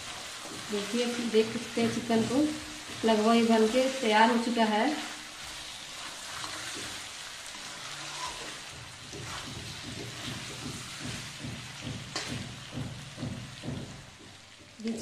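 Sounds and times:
chicken sizzling in oil: 0.0s - 14.1s
metal spatula scraping pan: 7.5s - 9.6s.

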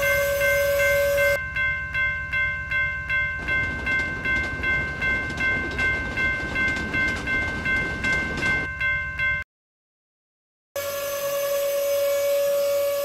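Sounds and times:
crossing warning bell ringing: 0.0s - 9.4s
train rumbling past: 3.1s - 8.9s.

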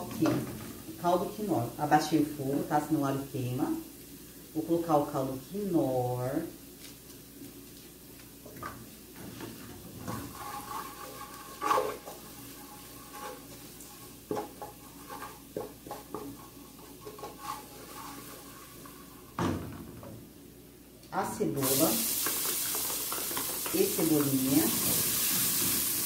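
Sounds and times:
faint sizzling: 0.0s - 26.0s
wooden spoon scraping a pan: 8.6s - 19.4s, 21.6s - 26.0s.

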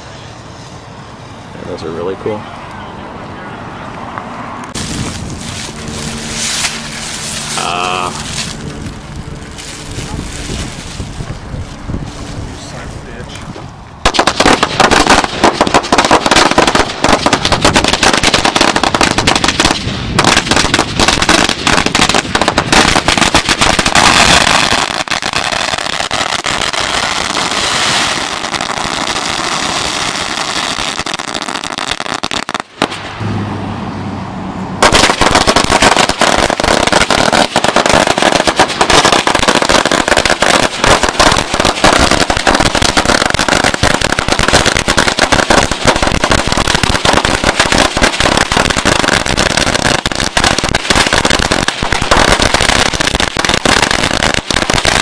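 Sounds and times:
firecrackers crackling: 4.6s - 33.4s, 34.8s - 55.0s.

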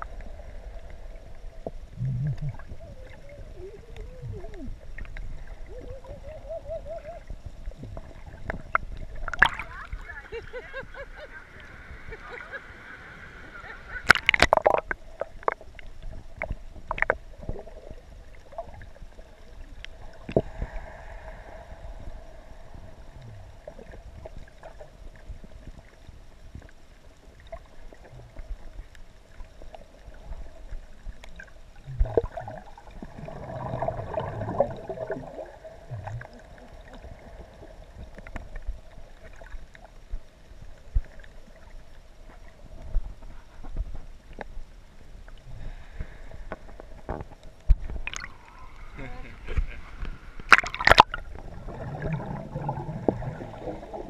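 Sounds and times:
faint steady hum: 0.0s - 54.0s
rush of moving water: 0.0s - 54.0s
muffled underwater clicks and knocks: 14.0s - 17.6s, 46.5s - 48.3s, 49.5s - 51.5s.

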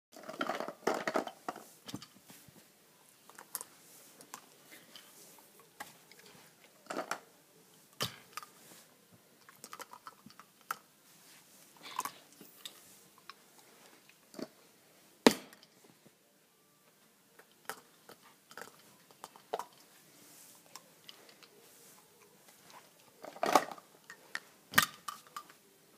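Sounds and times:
plastic tubes knocking and clattering: 0.2s - 2.2s.

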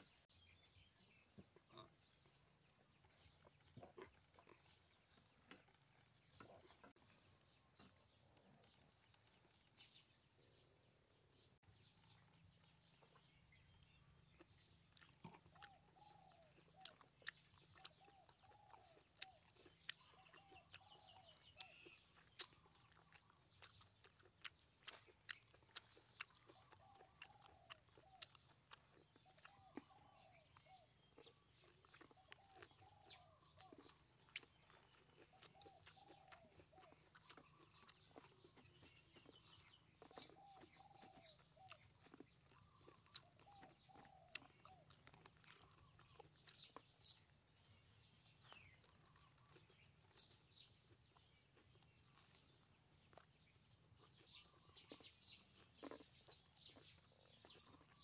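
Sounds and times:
wet chewing and lip smacks: 1.1s - 10.0s, 11.9s - 58.0s
bird calling: 15.5s - 23.4s, 26.2s - 34.5s, 38.8s - 46.6s.

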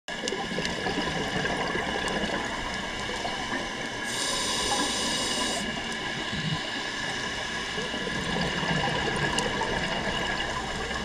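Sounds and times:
bubbly gurgle of exhaled air: 0.1s - 11.0s
regulator hiss on inhale: 4.0s - 7.6s.

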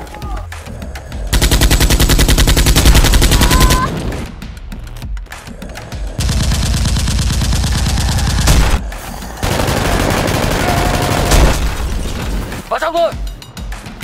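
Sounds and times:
automatic gunfire: 1.4s - 3.9s, 9.4s - 11.6s.

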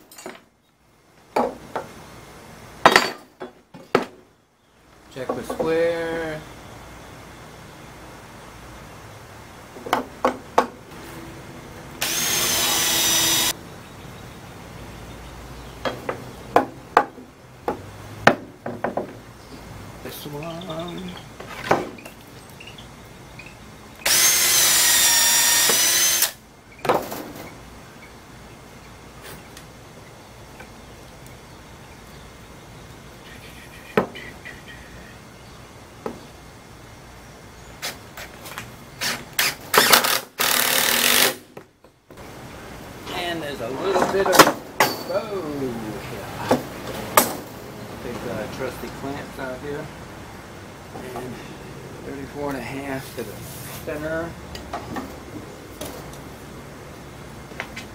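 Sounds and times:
faint background noise: 0.0s - 57.9s
tools knocking on wood: 9.8s - 10.8s, 15.8s - 19.2s
cordless drill driving screw: 12.0s - 13.5s, 24.0s - 26.4s, 39.0s - 41.4s.

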